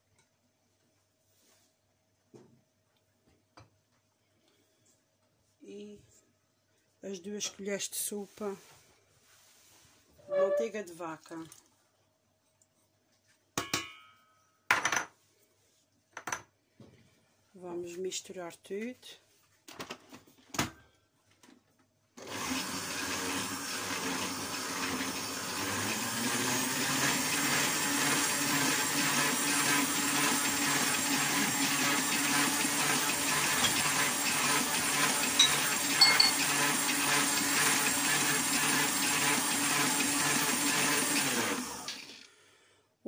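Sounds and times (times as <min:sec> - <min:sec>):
stand mixer running: 0:22.2 - 0:42.2.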